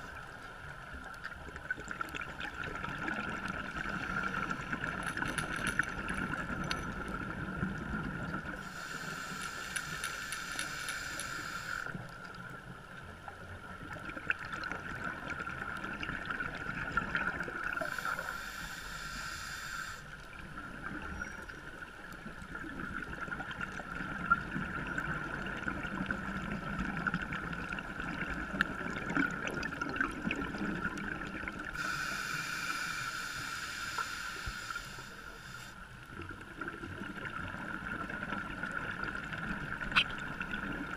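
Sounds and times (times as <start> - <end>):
steady underwater whine: 0.0 - 40.9
faint clicks: 8.8 - 12.4.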